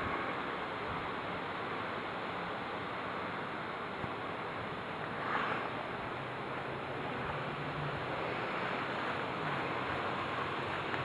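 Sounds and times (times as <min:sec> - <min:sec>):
wind on microphone: 0:00.0 - 0:02.0
honeybees buzzing: 0:04.6 - 0:11.0.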